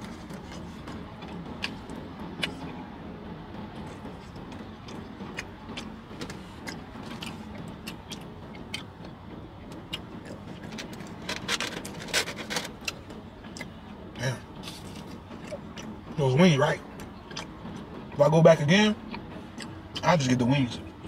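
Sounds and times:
chewing with mouth clicks: 0.0s - 2.8s, 3.8s - 13.9s, 14.6s - 16.0s, 16.9s - 18.1s, 19.1s - 20.2s
car cabin hum: 0.0s - 21.0s.

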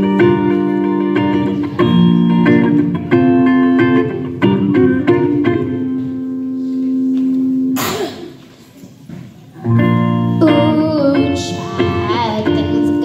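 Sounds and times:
electric guitar chords: 0.0s - 8.5s, 9.6s - 13.0s
child singing: 10.4s - 13.0s.

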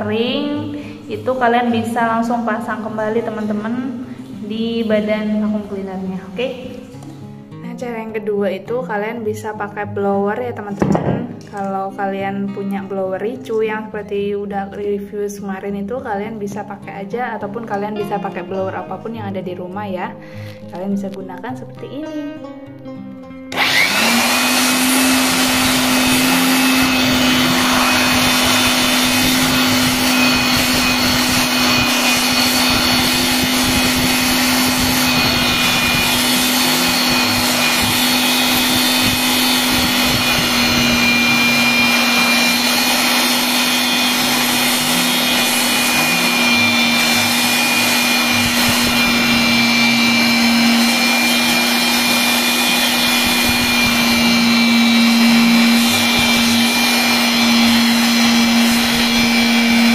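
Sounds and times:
electric blower motor whine: 23.5s - 59.9s.

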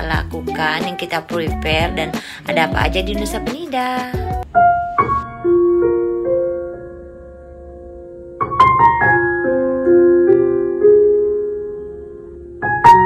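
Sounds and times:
soft piano music: 0.0s - 13.0s.

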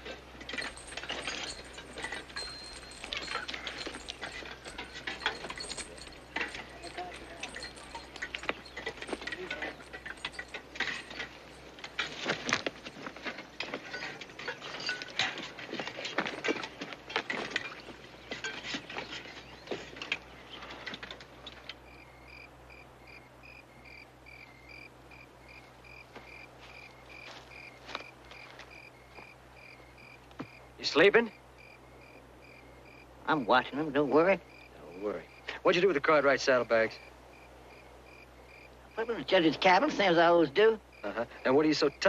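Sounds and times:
tin dishes clinking and scraping: 0.0s - 21.8s
crickets chirping: 0.0s - 42.0s.

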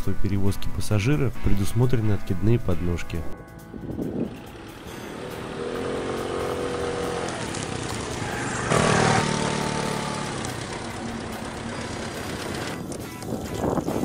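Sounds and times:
scooter engine running: 3.8s - 14.0s.

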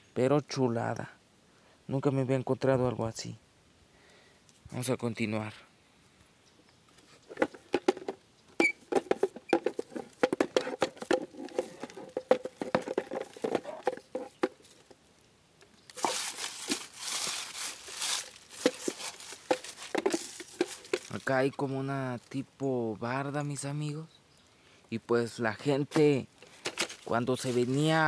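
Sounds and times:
brush rustling: 6.8s - 22.6s, 25.4s - 28.0s
footsteps crunching through dry leaves: 15.8s - 22.2s, 25.6s - 28.0s.

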